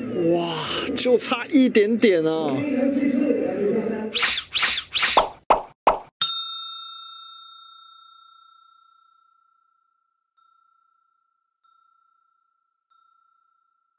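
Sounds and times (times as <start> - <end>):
bell ding: 6.2 - 13.9.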